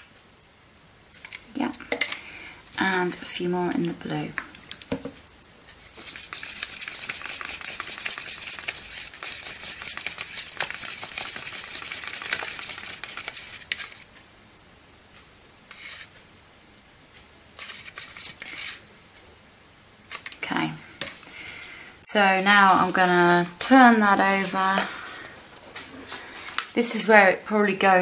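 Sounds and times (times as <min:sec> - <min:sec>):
stick scraping plastic pot: 0:05.8 - 0:14.1, 0:17.6 - 0:18.8.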